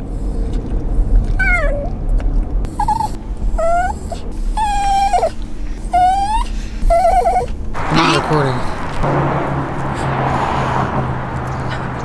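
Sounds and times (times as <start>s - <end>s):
car rumble: 0.0s - 12.0s
dog whining and crying: 1.0s - 2.0s, 2.7s - 8.2s.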